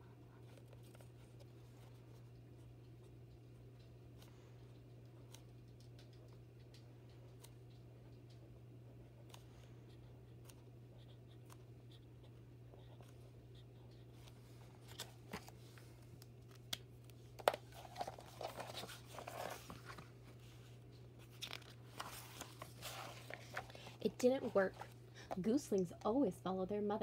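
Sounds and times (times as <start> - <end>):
page turning: 14.2 - 15.6, 17.4 - 20.6, 21.2 - 25.0
paper rustling: 17.4 - 25.0.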